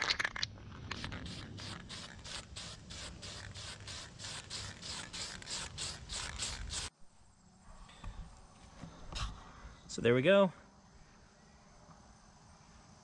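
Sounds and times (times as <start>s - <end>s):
spray-paint can hissing: 0.9s - 6.9s.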